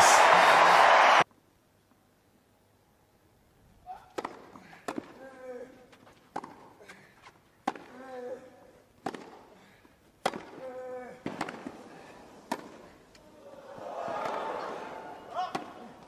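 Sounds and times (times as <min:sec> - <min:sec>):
tennis ball hit by racket: 0:09.0 - 0:09.4, 0:10.2 - 0:10.6, 0:11.2 - 0:11.8, 0:12.5 - 0:12.8.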